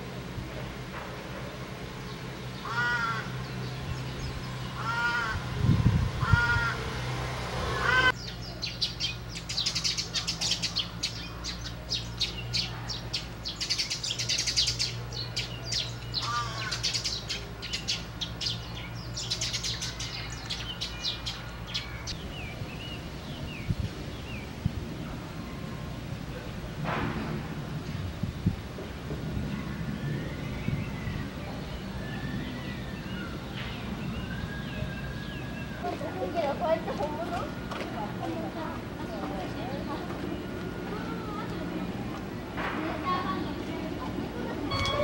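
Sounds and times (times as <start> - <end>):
small birds chirping: 0.0 - 26.8, 27.6 - 45.0
crow cawing: 2.6 - 3.4, 4.8 - 5.4, 6.2 - 6.9, 7.7 - 8.1, 16.2 - 16.9.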